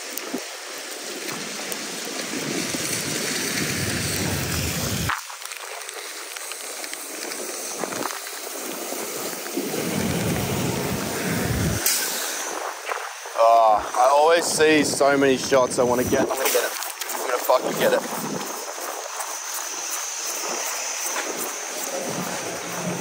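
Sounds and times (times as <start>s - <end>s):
heavy rain on street: 0.0s - 18.4s, 20.5s - 23.0s
deep rumble: 9.8s - 11.8s.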